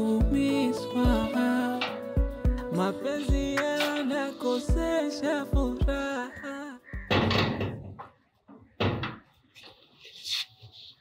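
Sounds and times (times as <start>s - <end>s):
background music: 0.0s - 7.7s.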